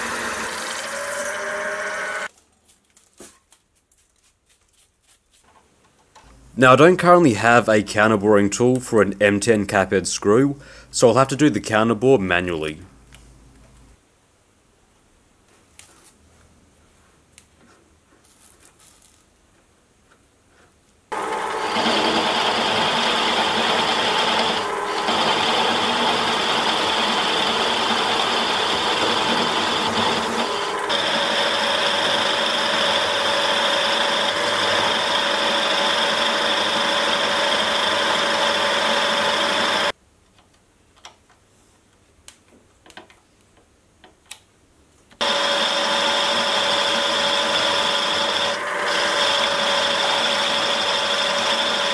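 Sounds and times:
milling machine whining: 0.0s - 2.3s, 21.1s - 39.9s, 45.2s - 51.9s.

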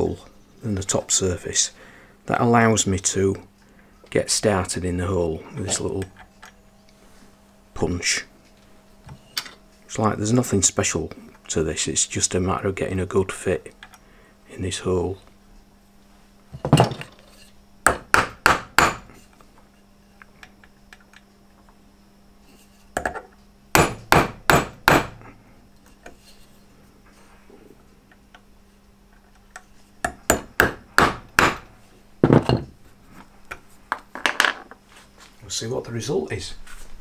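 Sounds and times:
hammer tapping metal punch: 17.8s - 19.1s, 23.0s - 25.2s, 30.0s - 32.7s.

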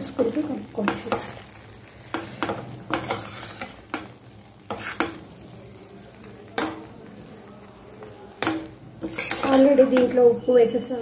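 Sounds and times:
faint sizzle from pan: 0.0s - 11.0s
metal spoon scraping a steel pan: 0.8s - 1.5s, 2.1s - 3.9s, 4.7s - 5.2s, 8.4s - 10.2s.

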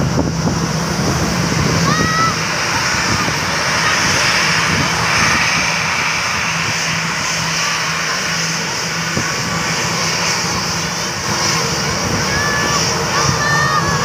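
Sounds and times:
jet engines at taxi power: 0.0s - 14.0s.

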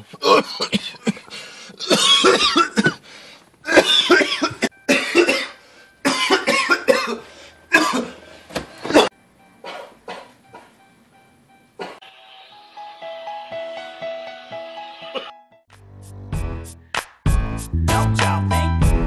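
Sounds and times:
man coughing hard: 0.1s - 3.0s, 3.7s - 8.2s, 8.8s - 10.7s, 11.8s - 12.0s.

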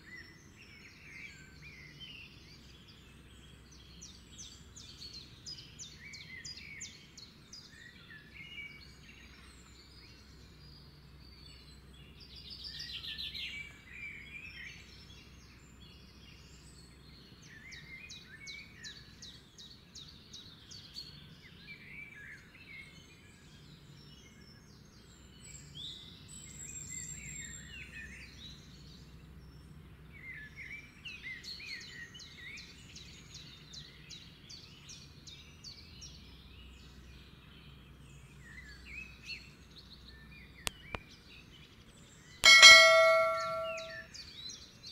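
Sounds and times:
bright ding chime: 42.4s - 44.0s.

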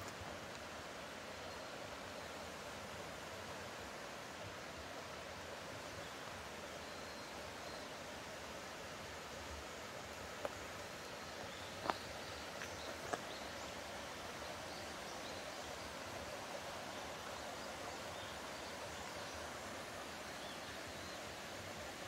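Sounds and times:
mountain stream rushing: 0.0s - 22.0s.

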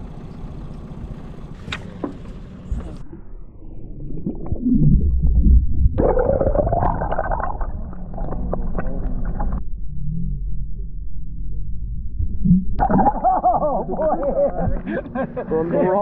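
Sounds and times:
underwater river rumbling and gurgling: 2.9s - 14.9s.

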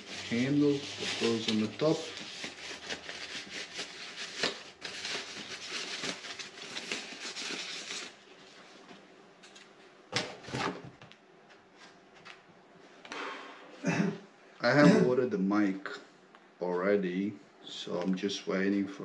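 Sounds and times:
packaging wrap rustling and crinkling: 0.0s - 8.8s.

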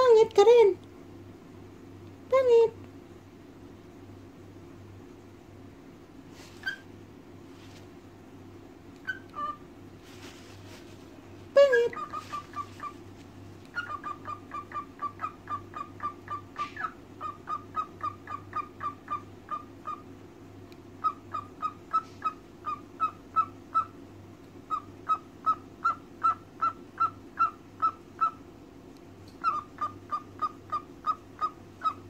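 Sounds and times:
cockatiel calling: 6.6s - 6.9s, 9.0s - 9.6s, 11.7s - 13.0s, 13.7s - 20.1s, 21.0s - 24.0s, 24.7s - 28.4s, 29.4s - 32.0s.

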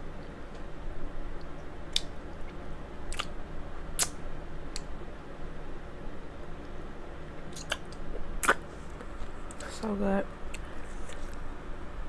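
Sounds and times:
electric fan hum: 0.0s - 12.0s.

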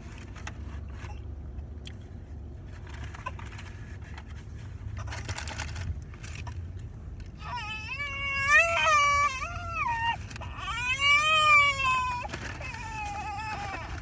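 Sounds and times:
low rumble in car cabin: 0.0s - 14.0s.

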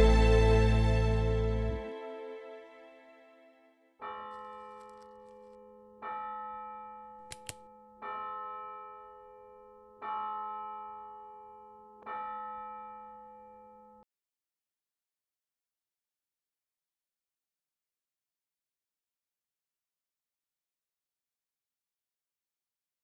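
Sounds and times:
church bell tolling: 4.0s - 14.0s
short clicks: 7.3s - 7.6s.

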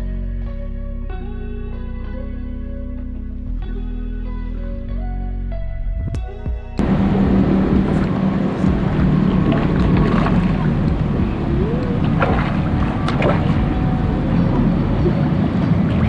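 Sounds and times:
steady low hum: 0.5s - 16.0s
rushing noise: 6.8s - 16.0s.

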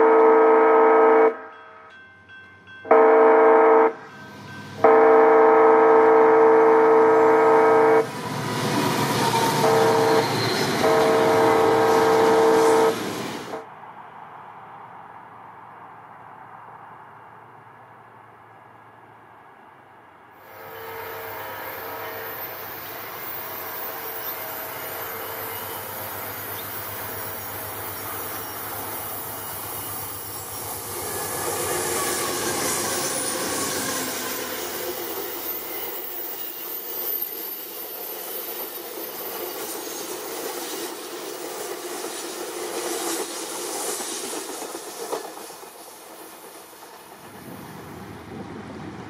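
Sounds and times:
train wheels on rails: 3.9s - 13.7s, 20.4s - 49.0s
high wheel squeal: 8.0s - 13.6s, 20.4s - 47.5s.

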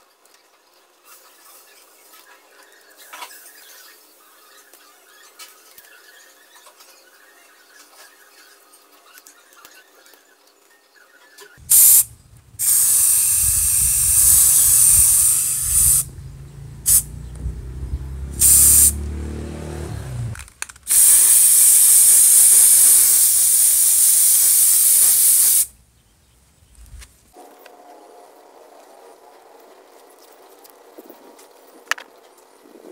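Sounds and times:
aerosol spray can hissing: 11.6s - 16.1s, 16.8s - 17.2s, 18.2s - 19.0s, 20.9s - 25.7s.

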